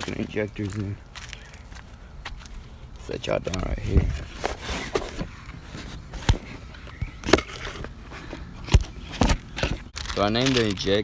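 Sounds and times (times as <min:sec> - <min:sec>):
plastic bags rustling: 0:09.2 - 0:11.0.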